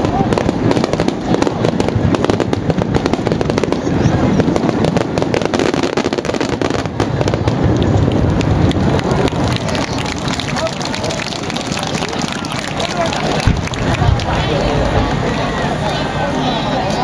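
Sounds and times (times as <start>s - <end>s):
fireworks booming and crackling: 0.0s - 15.3s.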